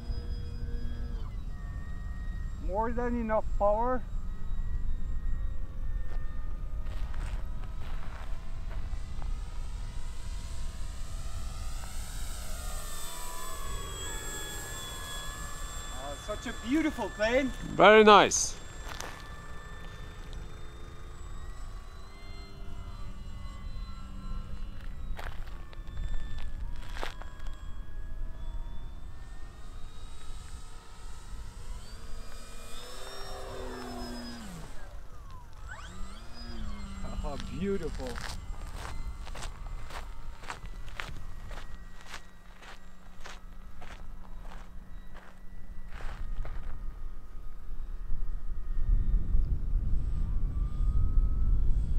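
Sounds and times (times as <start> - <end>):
model plane motor whining: 0.0 - 51.9
wind rumble on microphone: 35.3 - 51.9.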